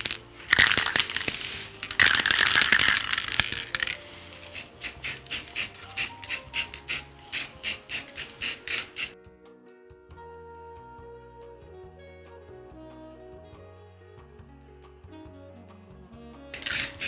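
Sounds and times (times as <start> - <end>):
spray can ball rattling: 0.0 - 9.2, 16.6 - 17.0
spray can rustling and hissing: 0.0 - 9.2, 16.6 - 17.0
soft background music: 0.0 - 17.0.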